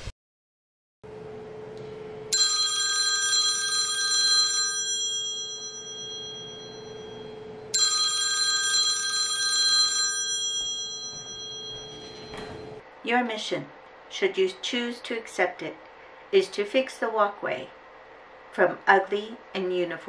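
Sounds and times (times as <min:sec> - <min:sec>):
phone ringtone ringing: 0:02.3 - 0:12.8.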